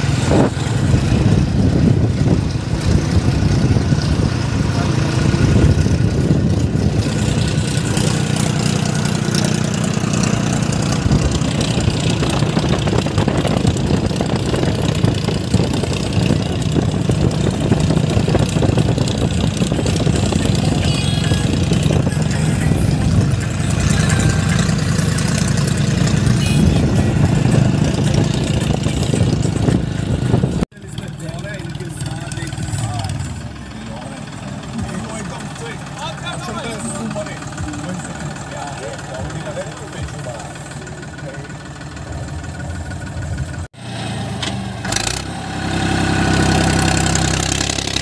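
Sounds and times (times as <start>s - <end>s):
diesel tractor engine running: 0.0s - 48.0s.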